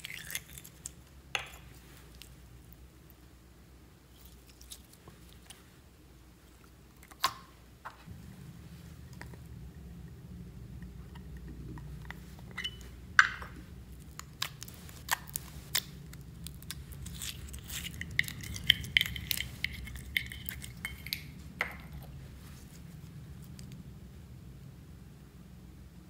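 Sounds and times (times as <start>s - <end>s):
wet slime squelches: 13.6s - 23.8s.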